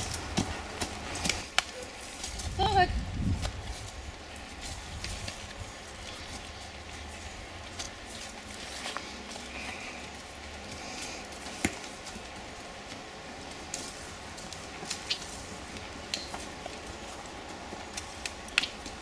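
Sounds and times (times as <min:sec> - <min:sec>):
horse hoof steps on dirt: 0:00.0 - 0:02.6
horse tack clicking: 0:00.0 - 0:02.6, 0:03.3 - 0:19.0
steady background hiss: 0:00.0 - 0:19.0.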